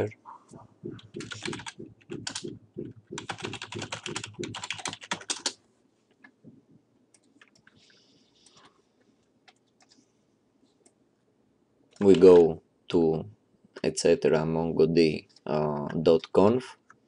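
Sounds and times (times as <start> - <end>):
fast typing on keyboard: 0.8 - 5.6, 12.0 - 12.5.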